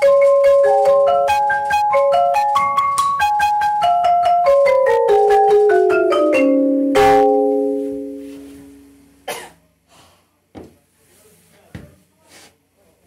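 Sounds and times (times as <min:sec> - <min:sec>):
marimba duet playing: 0:00.0 - 0:09.0.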